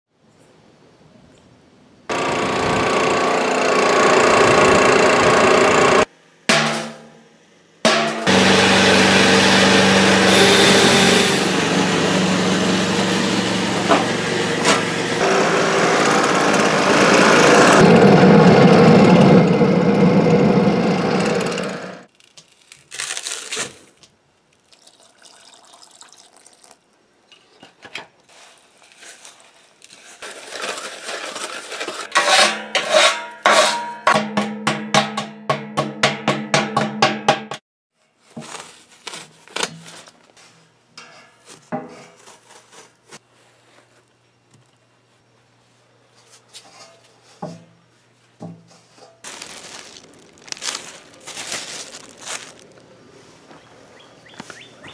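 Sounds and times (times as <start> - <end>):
furnace burner blower roaring: 2.1 - 6.1, 8.0 - 22.1
plastic bag rustling: 22.1 - 24.0, 28.2 - 32.1, 38.1 - 40.8, 48.8 - 53.6
powder pouring into bucket: 24.6 - 26.8, 28.3 - 32.1, 49.2 - 52.7
knocks and scrapes on steel bucket: 30.2 - 37.6, 41.0 - 42.6.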